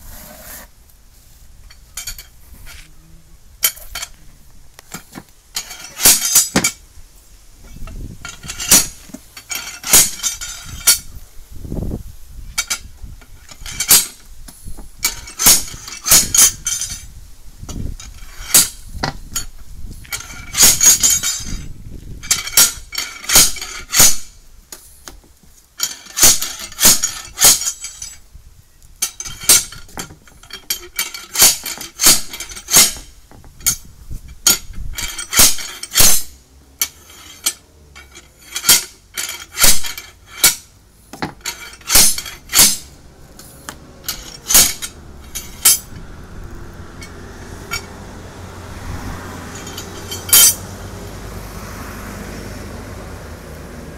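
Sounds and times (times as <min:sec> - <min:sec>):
tyre lever clanking on wheel rim: 0:04.9 - 0:06.8, 0:29.0 - 0:46.1.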